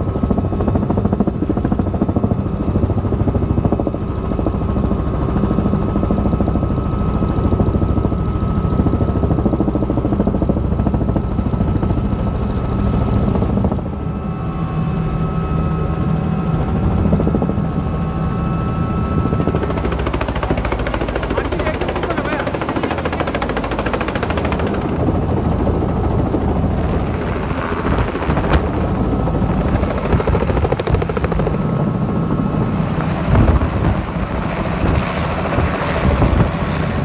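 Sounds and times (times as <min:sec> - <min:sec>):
helicopter rotor drone: 0:00.0 - 0:37.0
high engine whine: 0:12.9 - 0:37.0.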